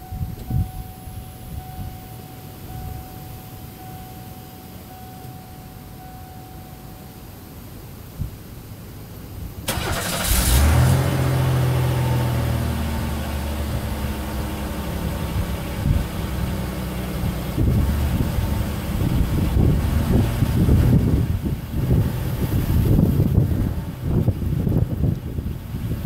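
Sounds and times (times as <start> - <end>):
car engine idling: 0.0 - 26.0
car engine cranking: 9.6 - 26.0.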